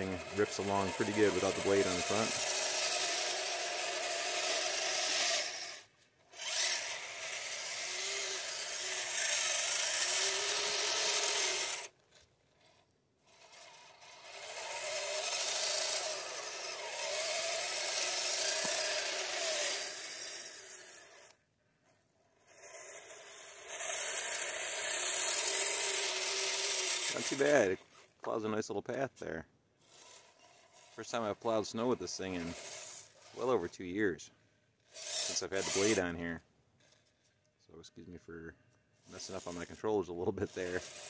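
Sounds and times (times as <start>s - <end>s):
plow blade pushing through snow: 0.0s - 12.0s, 12.6s - 21.3s, 23.8s - 28.1s, 29.8s - 33.8s, 35.0s - 36.1s, 39.0s - 41.0s
electric motors whining: 0.0s - 21.4s, 22.3s - 28.1s, 29.8s - 33.8s, 34.8s - 36.1s, 40.3s - 41.0s.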